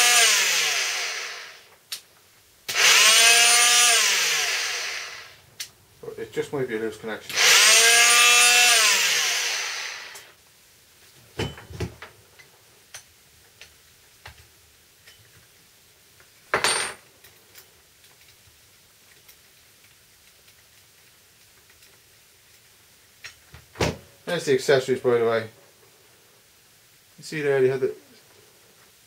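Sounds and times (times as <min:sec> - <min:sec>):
power tool motor winding down: 0:00.0 - 0:01.7, 0:02.7 - 0:05.4, 0:07.3 - 0:10.3.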